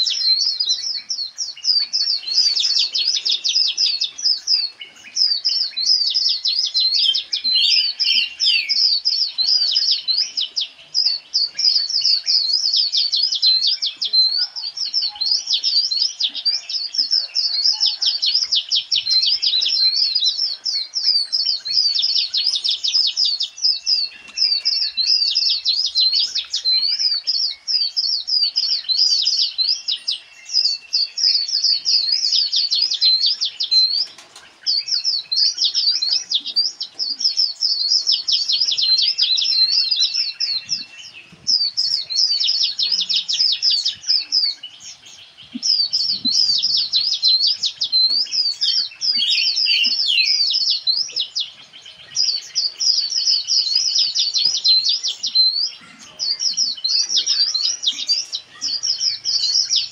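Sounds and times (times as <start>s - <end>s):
small birds chirping: 0.0s - 59.9s
bird whistled notes: 7.0s - 9.0s, 45.6s - 51.5s.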